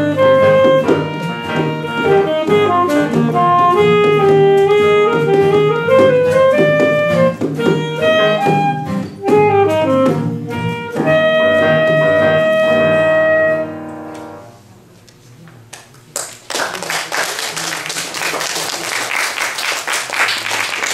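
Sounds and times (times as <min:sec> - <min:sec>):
saxophone piano and guitars playing: 0:00.0 - 0:14.7
audience applauding: 0:16.1 - 0:20.9.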